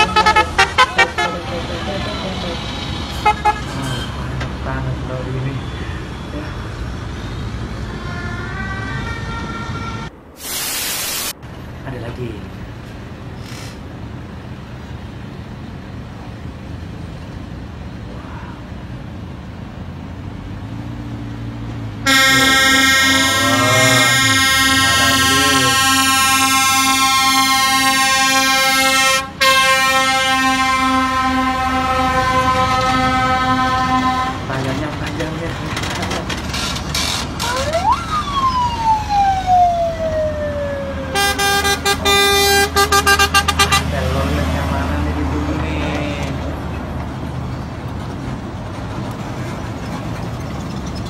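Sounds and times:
musical horn blaring: 0:00.0 - 0:02.4, 0:03.2 - 0:04.2, 0:22.0 - 0:34.8, 0:41.1 - 0:44.0
siren wailing: 0:05.5 - 0:10.2, 0:22.0 - 0:29.0, 0:37.4 - 0:43.4
lorry engine rumble: 0:11.4 - 0:51.0.

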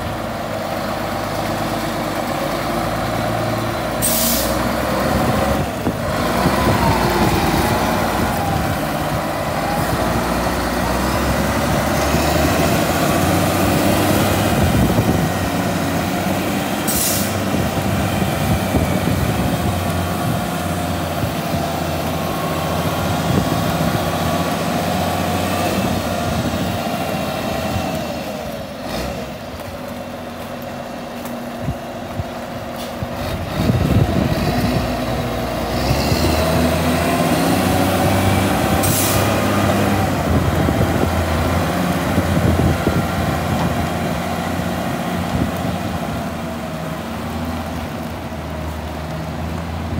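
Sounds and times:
diesel engine running with whine: 0:00.0 - 0:49.9
brief hiss: 0:04.0 - 0:04.6.

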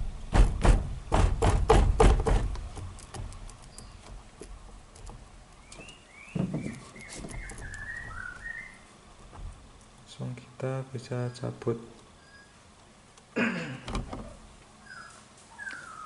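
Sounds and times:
knocks on steering wheel: 0:00.3 - 0:02.6.

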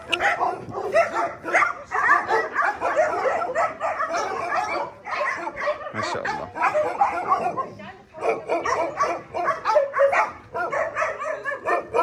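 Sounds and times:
many dogs barking and yipping: 0:00.0 - 0:12.0.

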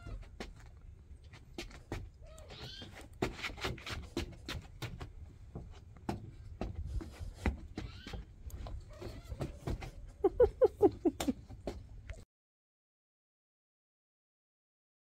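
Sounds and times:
boots stepping on wooden boards: 0:00.0 - 0:10.1.

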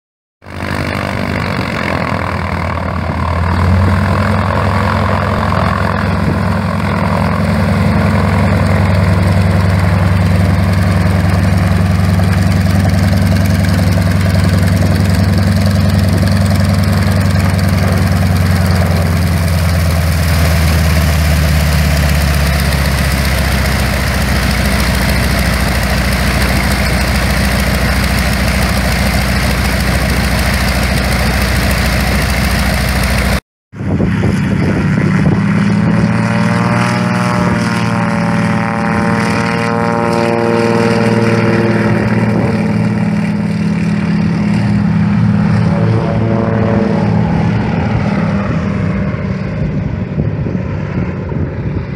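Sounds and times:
propeller plane engine powering up: 0:00.4 - 0:51.9
radial engine idling: 0:07.4 - 0:33.4.

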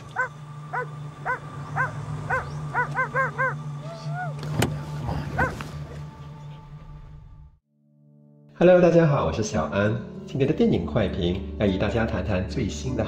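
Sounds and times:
steady low hum: 0:00.0 - 0:07.6
dog barking: 0:00.1 - 0:03.6, 0:05.4 - 0:05.7
dog whining: 0:00.1 - 0:04.4.

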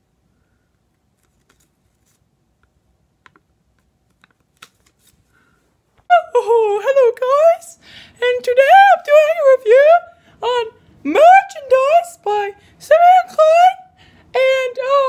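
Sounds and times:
paper crinkling: 0:00.9 - 0:02.4, 0:03.7 - 0:05.6.

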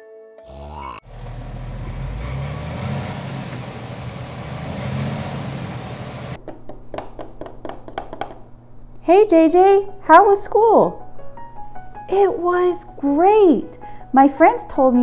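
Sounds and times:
bus engine hum and road noise: 0:01.0 - 0:06.4.

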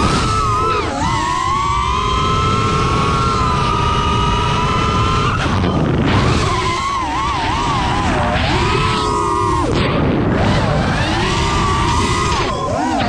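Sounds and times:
drone motors whining: 0:00.0 - 0:13.0
low rush of wind: 0:00.0 - 0:13.0.

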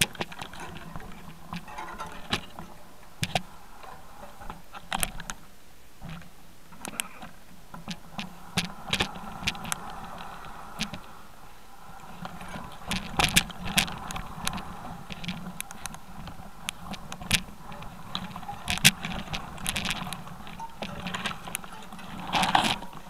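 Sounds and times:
steady hiss: 0:00.0 - 0:23.0
camera gear clicks and rattles: 0:12.2 - 0:23.0.

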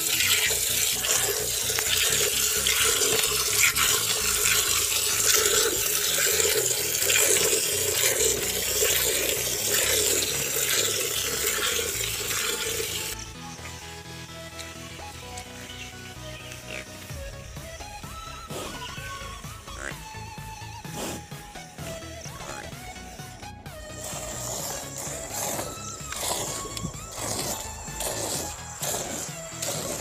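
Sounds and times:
milk squirting into steel bucket: 0:00.0 - 0:13.2, 0:23.9 - 0:30.0.

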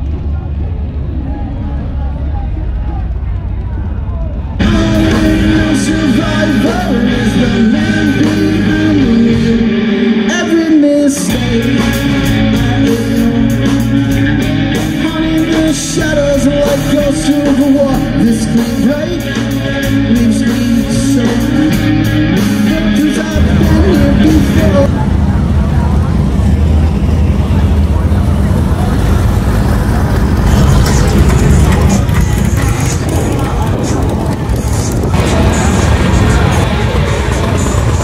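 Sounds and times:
bass guitar: 0:00.0 - 0:38.0
electric guitars: 0:02.7 - 0:38.0
drum kit: 0:04.2 - 0:24.9, 0:29.2 - 0:38.0
man singing: 0:04.6 - 0:24.9.

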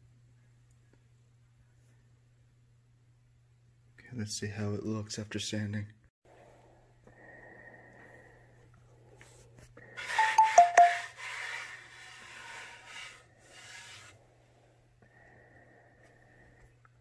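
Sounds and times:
hand rubbing on wood: 0:10.0 - 0:14.2.

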